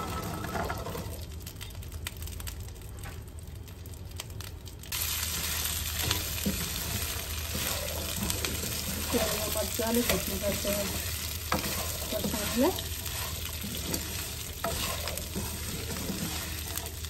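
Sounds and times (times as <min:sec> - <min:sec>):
chillies sizzling in oil: 0:00.0 - 0:17.0.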